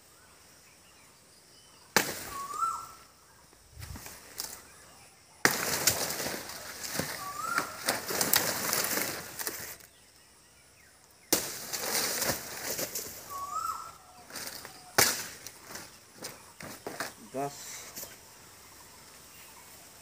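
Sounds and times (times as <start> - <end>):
bird chirping: 0.0 - 5.4, 6.4 - 11.4, 12.2 - 20.0
banana leaves rustling: 2.0 - 3.1, 3.7 - 4.8, 5.4 - 10.0, 11.3 - 18.3.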